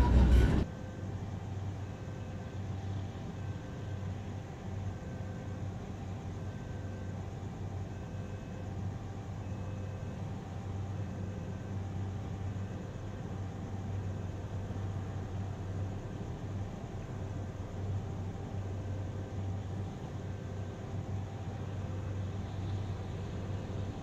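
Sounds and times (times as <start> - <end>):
diesel train engine idling: 0.0 - 0.7.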